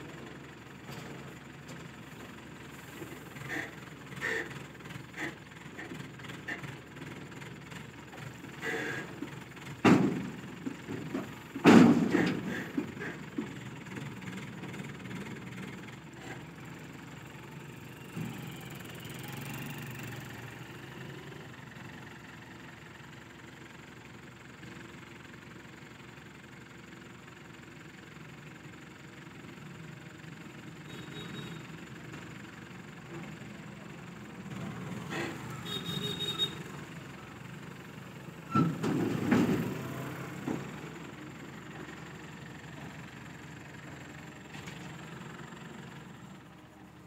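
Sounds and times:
diesel crane engine idling: 0.0 - 47.0
heavy metallic clunks: 9.8 - 13.4.

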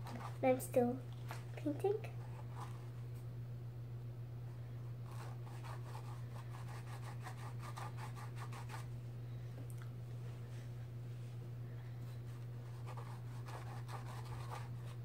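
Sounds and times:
paintbrush scratching on canvas: 0.0 - 0.5, 2.2 - 2.9, 5.0 - 8.9, 12.3 - 15.0
steady low hum: 0.0 - 15.0.

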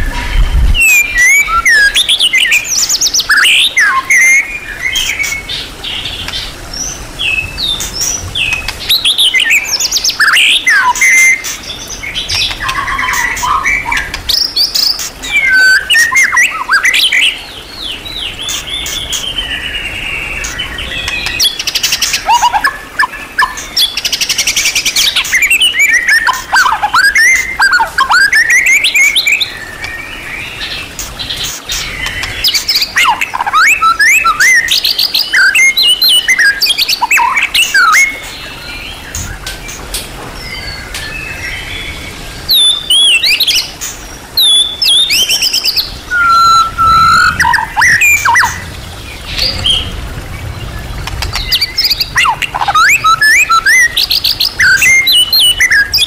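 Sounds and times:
bird singing varied song: 0.0 - 56.0
fast rattling bird phrase: 45.1 - 56.0.

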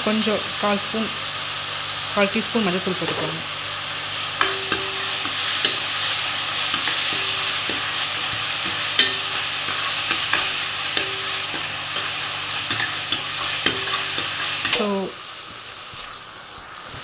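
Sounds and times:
onions sizzling in oil: 0.0 - 17.0
ladle clinking against pan: 4.4 - 5.9, 6.7 - 14.8.

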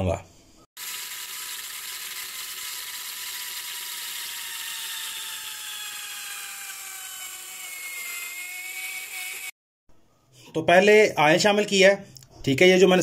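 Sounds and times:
blender motor whining: 0.8 - 9.6.

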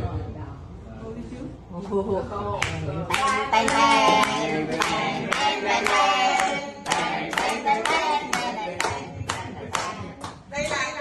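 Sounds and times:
group clapping in time: 2.6 - 10.9
voices singing: 3.1 - 11.0.

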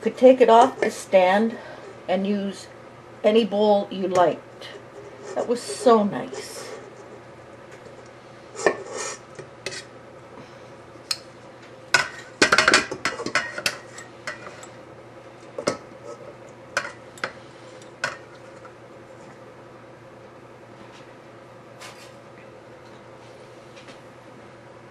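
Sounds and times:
metal bowls knocking and clinking: 11.9 - 14.7.

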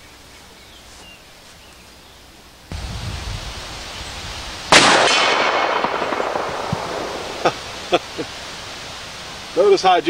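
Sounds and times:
revolver shot echoing: 4.7 - 7.8.

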